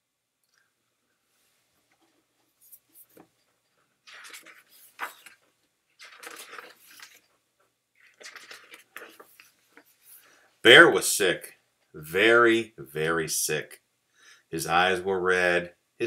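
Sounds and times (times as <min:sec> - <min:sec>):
book pages turning: 0:04.0 - 0:07.4, 0:08.0 - 0:10.3.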